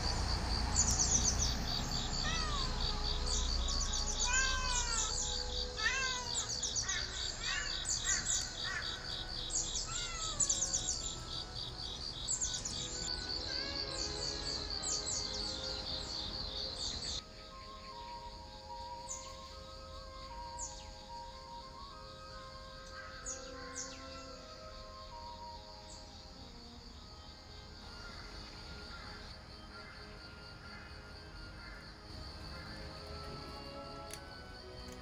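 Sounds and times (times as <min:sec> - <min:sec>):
birds chirping: 0:00.0 - 0:26.8
pulsing insect trill: 0:00.0 - 0:35.0.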